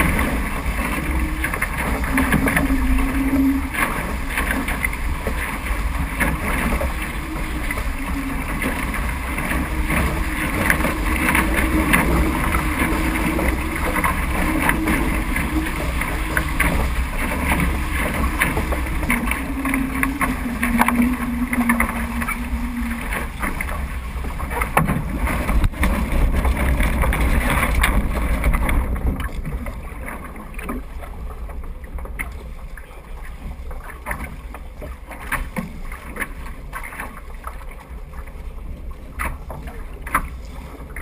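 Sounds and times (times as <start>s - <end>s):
wind buffeting microphone: 0.0s - 30.3s
water rushing and splashing: 0.0s - 41.0s
water slapping against hull: 0.0s - 41.0s.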